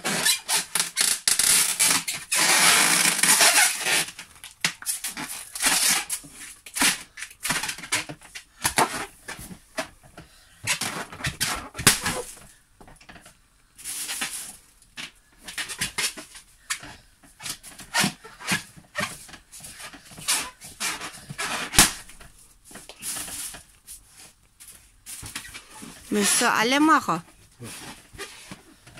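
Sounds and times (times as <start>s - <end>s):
rubber balloons squeaking: 0.0s - 9.5s, 10.6s - 12.5s, 15.4s - 22.2s, 25.2s - 28.8s.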